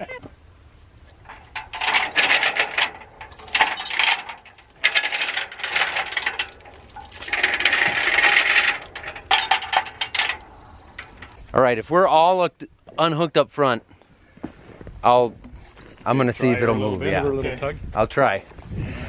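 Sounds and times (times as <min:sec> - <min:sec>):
steel chain clinking and rattling: 0:01.2 - 0:11.5.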